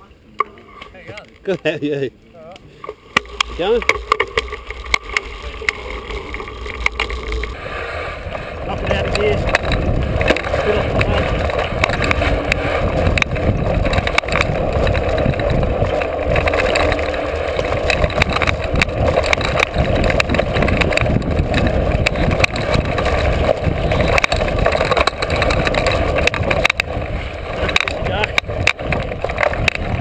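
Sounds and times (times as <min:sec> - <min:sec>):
bike rattling over bumps: 0:02.7 - 0:30.0
wind rush: 0:04.5 - 0:30.0.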